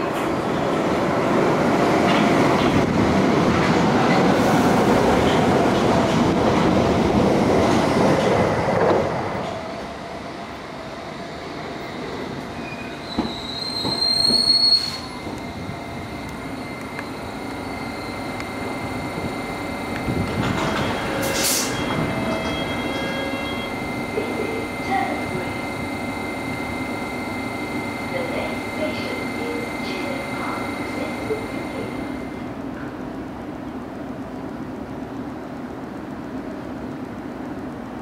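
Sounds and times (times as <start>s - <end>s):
train rumbling and clattering: 0.0s - 38.0s
high-pitched wheel squeal: 12.6s - 15.3s, 20.8s - 23.8s.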